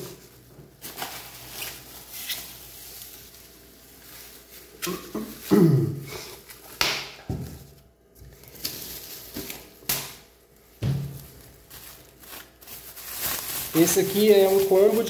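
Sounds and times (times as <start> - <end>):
plastic bag rustling: 0.0 - 15.0.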